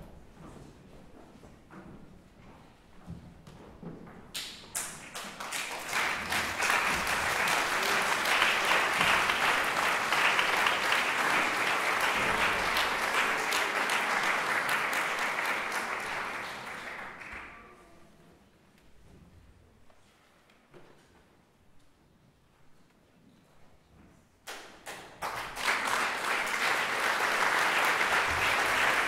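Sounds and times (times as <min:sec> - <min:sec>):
audience applauding: 0:04.8 - 0:17.8, 0:25.2 - 0:29.0.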